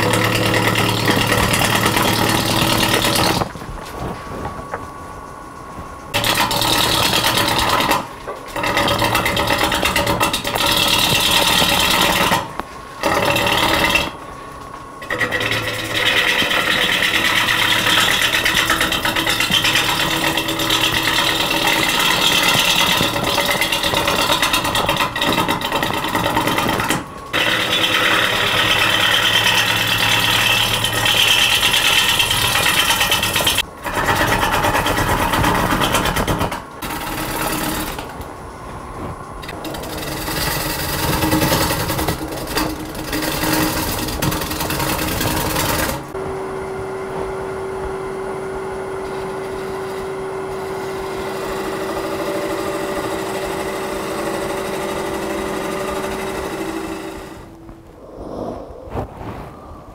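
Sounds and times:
gouge scraping wood on lathe: 0.0s - 3.4s, 6.2s - 14.2s, 15.0s - 38.0s, 39.4s - 46.1s, 51.0s - 57.4s
wood lathe hum: 0.0s - 3.5s, 6.2s - 14.2s, 15.0s - 38.2s, 39.4s - 57.6s.

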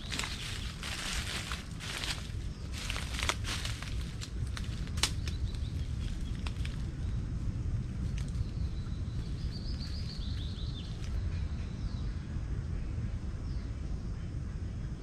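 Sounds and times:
birds chirping: 0.0s - 7.3s, 8.1s - 12.2s
low outdoor rumble: 0.0s - 15.0s.

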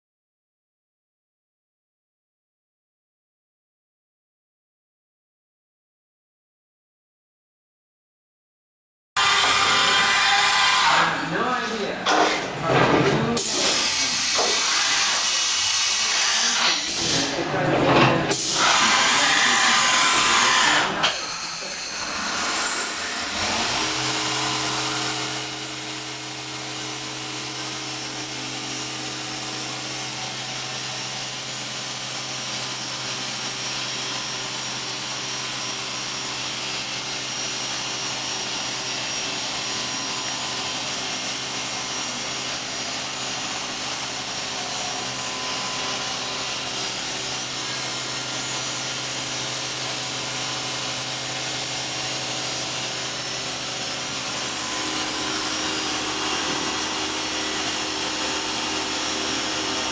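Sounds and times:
loud noisy machine sound: 9.2s - 59.9s
machine hum with hiss: 13.4s - 17.6s, 18.3s - 59.9s.

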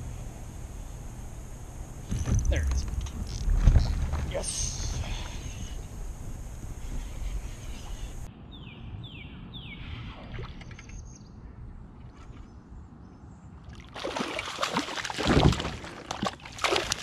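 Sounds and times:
low wind: 0.0s - 17.0s
water noise: 13.6s - 17.0s
fish thrashing and splashing: 13.8s - 17.0s.

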